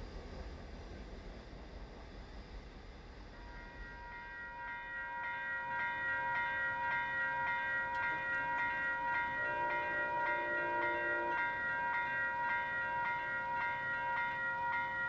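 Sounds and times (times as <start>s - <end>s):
distant train horn: 3.3s - 13.7s
level crossing warning bell: 3.4s - 15.0s.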